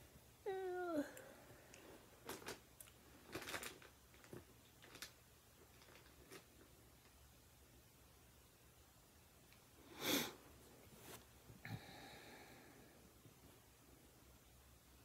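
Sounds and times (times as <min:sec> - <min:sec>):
woman humming: 0:00.4 - 0:01.3.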